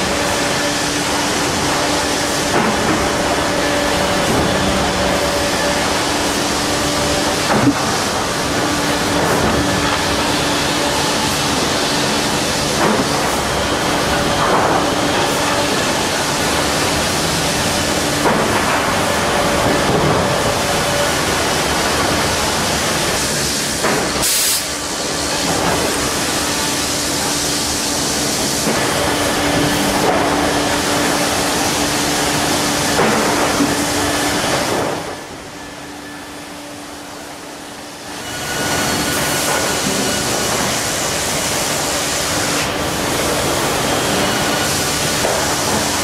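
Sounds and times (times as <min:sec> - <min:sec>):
sawmill machine noise: 0:00.0 - 0:46.0.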